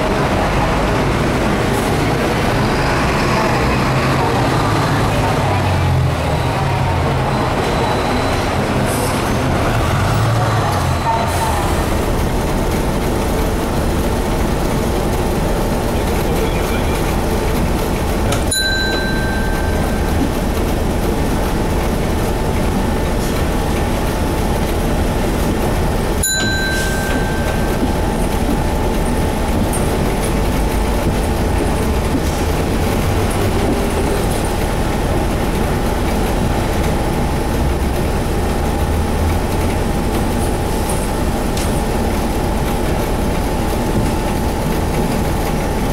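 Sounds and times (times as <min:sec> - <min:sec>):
bus diesel engine running: 0:00.0 - 0:45.9
steady high tone: 0:18.4 - 0:20.5, 0:26.2 - 0:29.2.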